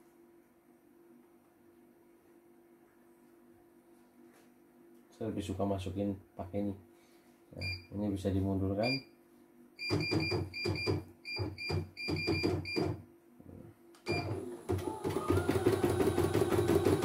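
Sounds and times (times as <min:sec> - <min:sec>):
machine beeping: 0:09.8 - 0:13.0.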